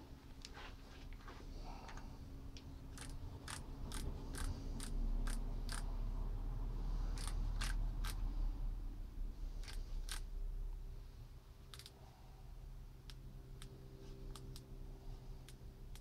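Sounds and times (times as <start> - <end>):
torque wrench clicking: 2.9 - 5.8, 7.2 - 8.2, 11.7 - 12.0, 15.4 - 16.0.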